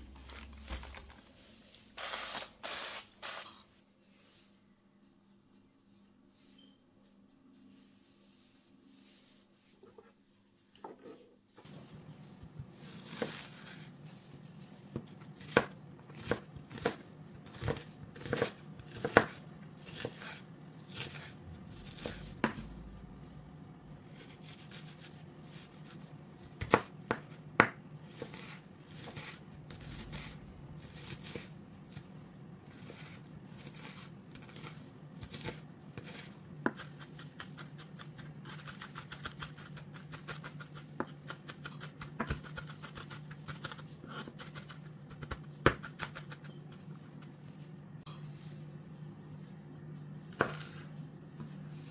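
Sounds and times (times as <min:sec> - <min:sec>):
knife chopping on cutting board: 0:14.9 - 0:22.7, 0:26.4 - 0:31.5, 0:35.2 - 0:46.4.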